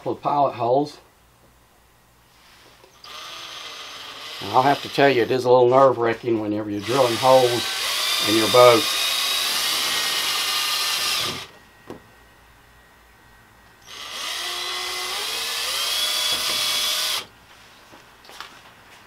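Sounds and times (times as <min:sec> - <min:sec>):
cordless drill drilling plastic: 0:02.9 - 0:05.2, 0:06.8 - 0:11.5, 0:13.8 - 0:17.3.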